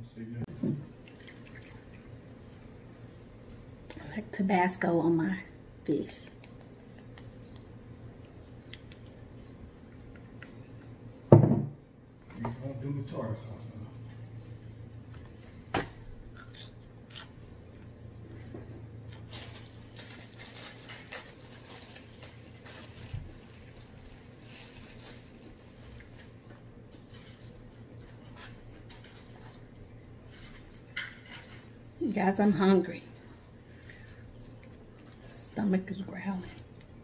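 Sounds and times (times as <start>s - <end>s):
steady low hum: 0.0s - 37.0s
chewing: 1.0s - 2.9s, 6.3s - 11.0s, 25.8s - 31.7s, 33.2s - 35.4s.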